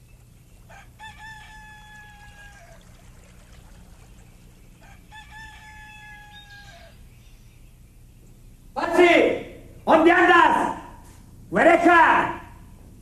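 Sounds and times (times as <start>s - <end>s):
faint low hum: 0.0s - 13.0s
rooster crowing: 0.6s - 3.2s, 4.7s - 7.1s.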